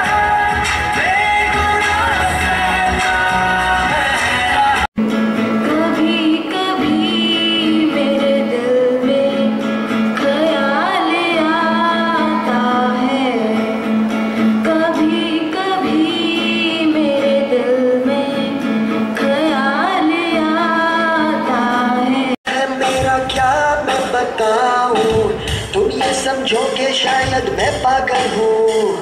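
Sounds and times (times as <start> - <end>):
acoustic guitar: 0.0 - 29.0
girl singing: 5.6 - 13.9, 14.6 - 24.6.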